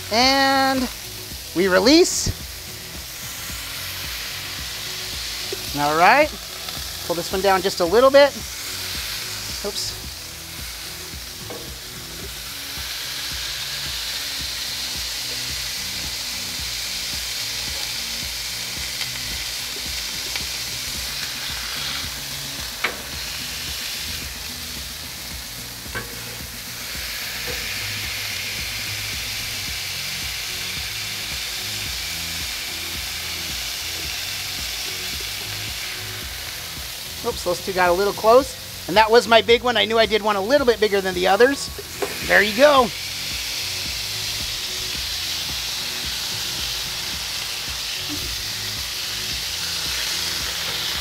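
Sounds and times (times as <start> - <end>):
patties sizzling on griddle: 0.0 - 51.0.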